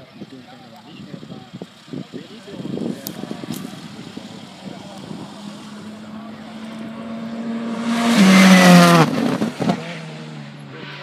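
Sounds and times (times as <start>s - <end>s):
rally car passing at speed: 3.6s - 11.0s.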